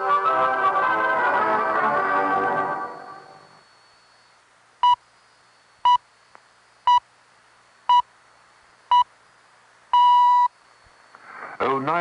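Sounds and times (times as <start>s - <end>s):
short high beeps: 10.0s - 10.5s
radio hiss: 10.5s - 12.0s.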